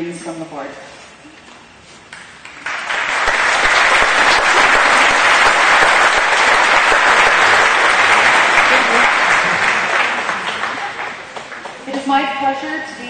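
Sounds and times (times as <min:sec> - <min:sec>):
audience applauding: 0:02.4 - 0:11.8.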